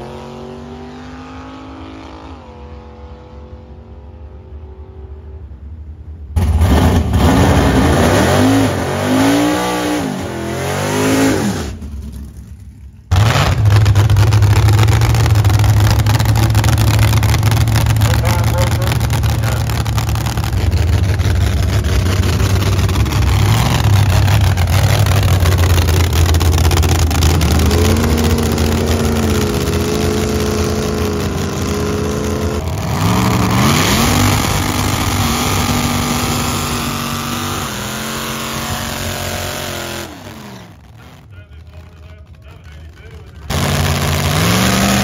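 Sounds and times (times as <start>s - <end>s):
car engine revving: 0.0s - 45.0s.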